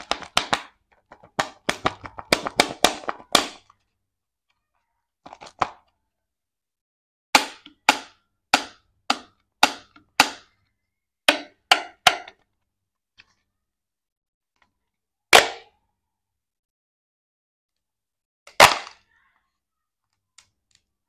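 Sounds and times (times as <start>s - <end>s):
plastic shell cracking apart: 0.0s - 3.8s, 5.3s - 5.9s.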